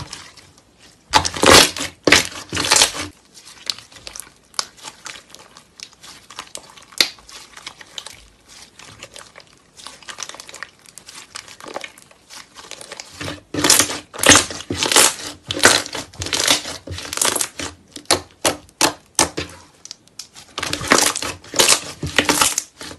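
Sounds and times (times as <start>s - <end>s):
slime crackling and popping: 1.1s - 22.9s.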